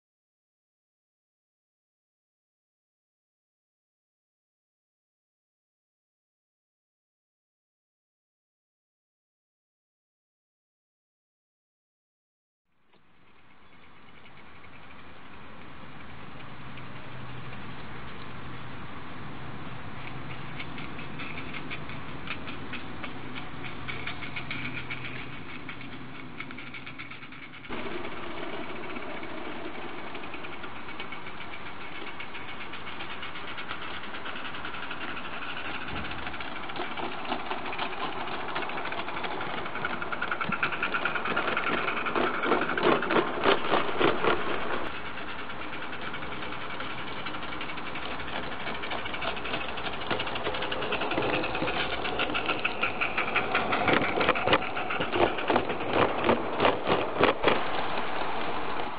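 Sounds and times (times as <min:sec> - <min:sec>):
steam locomotive chuffing: 0:13.4 - 0:58.9.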